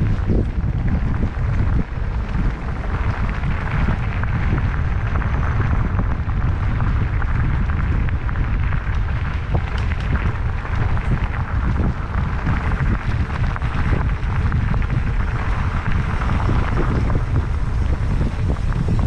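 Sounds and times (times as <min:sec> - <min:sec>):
bike rattles and clicks: 0:00.0 - 0:19.0
bike tyre noise: 0:00.0 - 0:19.0
wind rumble on microphone: 0:00.0 - 0:19.0.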